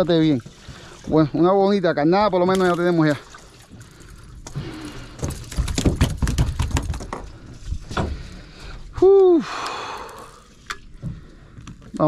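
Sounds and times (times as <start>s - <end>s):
fish slapping on boat deck: 5.2s - 7.3s.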